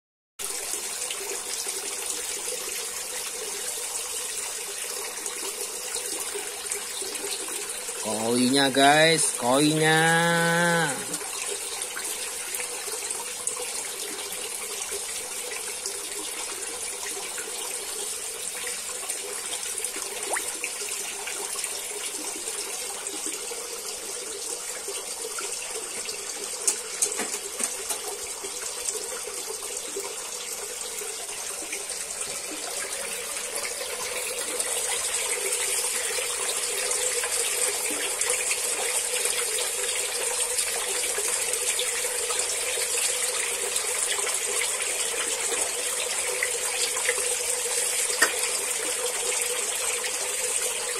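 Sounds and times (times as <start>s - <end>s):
water pouring into pond: 0.4s - 50.9s.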